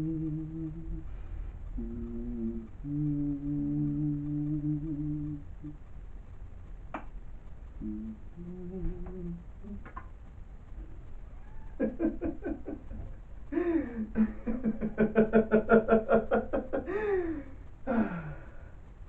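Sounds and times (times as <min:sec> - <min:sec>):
man laughing: 0:11.8 - 0:18.2.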